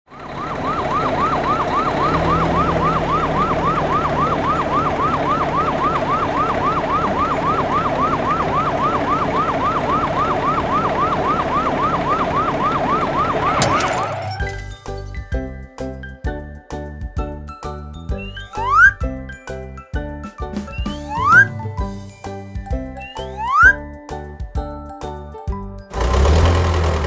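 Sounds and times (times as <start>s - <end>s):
fire truck siren yelping: 0.1s - 14.6s, 18.2s - 19.0s, 20.7s - 21.7s, 23.0s - 23.8s.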